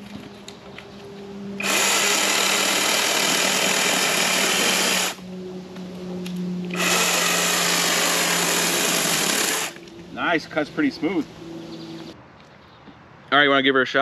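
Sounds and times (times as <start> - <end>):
chainsaw cutting wood: 1.6 - 5.2, 6.7 - 9.8
chainsaw motor humming: 1.6 - 5.4, 6.6 - 9.8.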